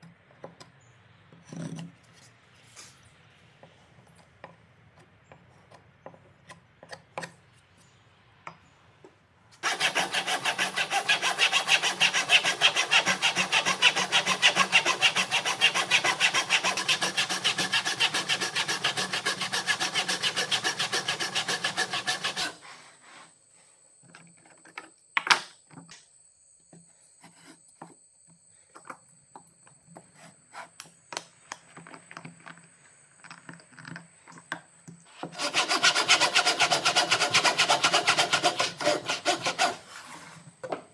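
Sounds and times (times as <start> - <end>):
hand saw cutting wood: 9.6 - 22.9, 35.2 - 40.3.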